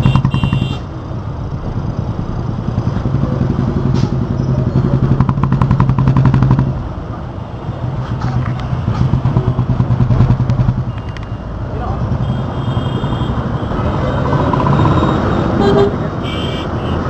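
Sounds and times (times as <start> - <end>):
motorcycle engines in traffic: 0.0 - 17.0
motorcycle engine revving: 1.8 - 6.8, 8.3 - 11.0, 13.3 - 15.9.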